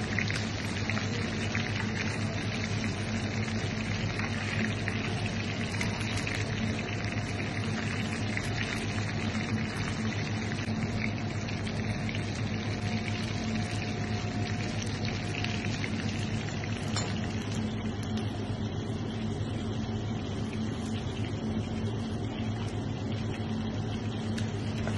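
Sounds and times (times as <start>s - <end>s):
fish sizzling in hot oil: 0.0s - 18.9s.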